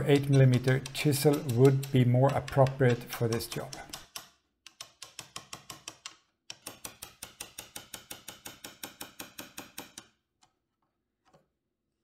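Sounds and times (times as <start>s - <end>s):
chisel scraping glue off plastic: 0.0s - 7.0s.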